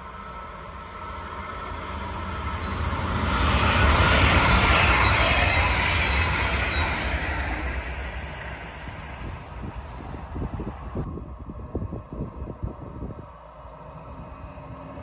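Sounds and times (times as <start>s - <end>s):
train passing at speed: 0.0s - 15.0s.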